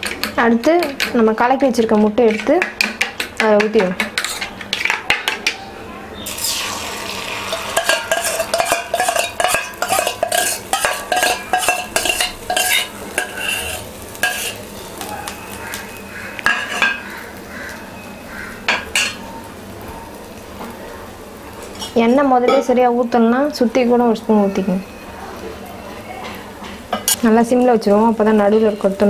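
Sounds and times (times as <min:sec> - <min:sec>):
metal spoon scraping and clinking pan: 0:04.0 - 0:04.9, 0:07.4 - 0:14.6, 0:16.4 - 0:17.0
egg sizzling in a pan: 0:06.2 - 0:29.0.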